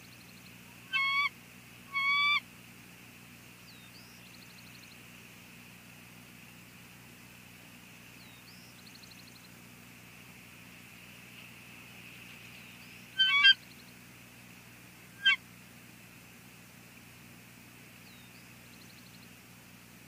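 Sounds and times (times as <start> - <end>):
eagles chittering: 0.8 - 1.3, 1.9 - 2.4, 13.1 - 13.6, 15.2 - 15.4.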